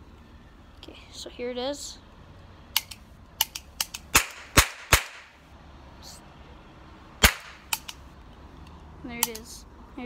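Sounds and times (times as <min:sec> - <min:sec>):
toy cap gun cracks: 0:02.8 - 0:05.3, 0:07.2 - 0:08.0.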